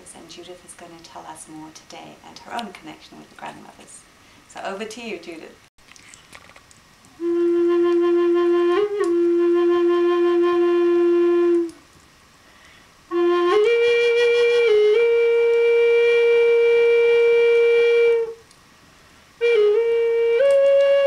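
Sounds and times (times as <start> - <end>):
wooden flute long notes: 7.2 - 11.8, 13.1 - 18.5, 19.4 - 21.0.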